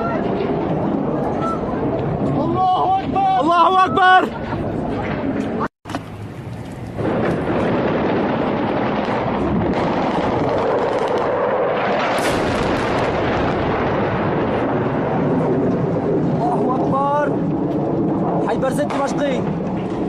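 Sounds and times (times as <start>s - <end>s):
bomb bursting: 0.0s - 20.0s.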